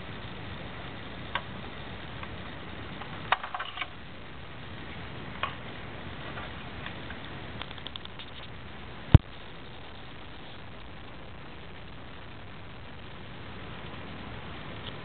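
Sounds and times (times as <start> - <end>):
sharp clicks: 7.6 - 8.6.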